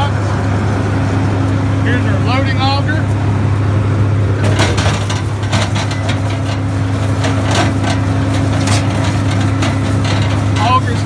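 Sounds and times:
machinery knocking and clattering: 0:04.4 - 0:11.0.

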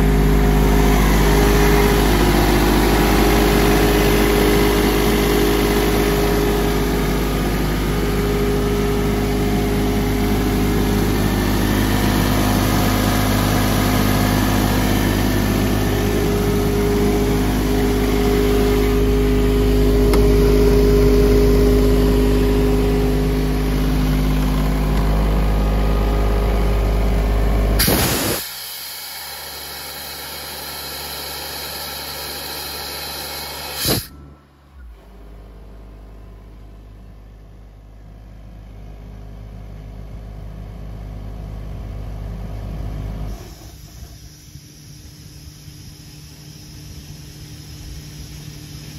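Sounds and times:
compressor diesel engine running: 0:00.0 - 0:48.9
short sharp noise: 0:27.8 - 0:29.0, 0:33.3 - 0:34.3.

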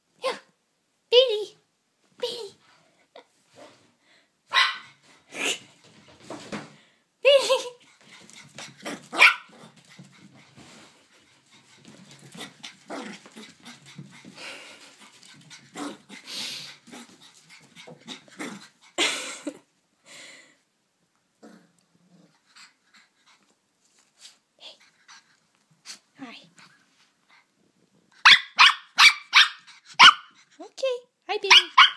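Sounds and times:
puppy barking: 0:04.5 - 0:05.0, 0:09.2 - 0:09.6, 0:28.2 - 0:30.4, 0:31.5 - 0:31.9
puppy growling: 0:11.9 - 0:14.6, 0:15.2 - 0:18.8, 0:21.4 - 0:22.5.

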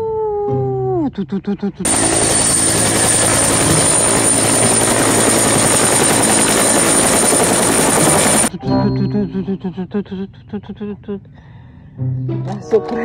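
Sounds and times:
helicopter rotor and engine: 0:01.8 - 0:08.5.

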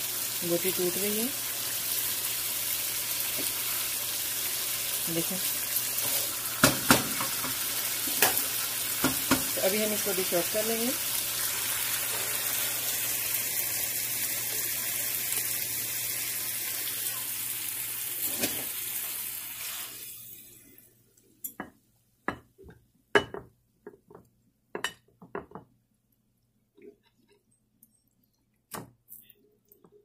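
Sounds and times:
curry sizzling in a pan: 0:00.0 - 0:20.9.

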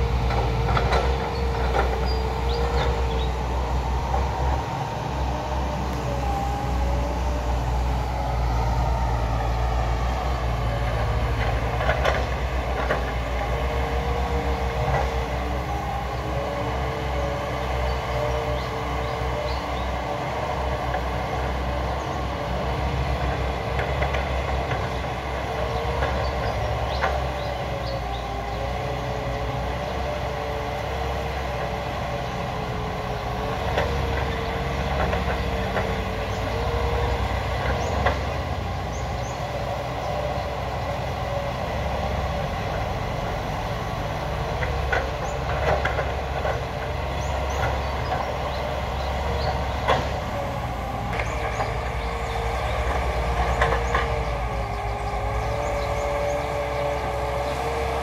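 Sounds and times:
hydraulic whine: 0:00.0 - 0:25.0
excavator diesel engine running: 0:00.0 - 0:58.0.

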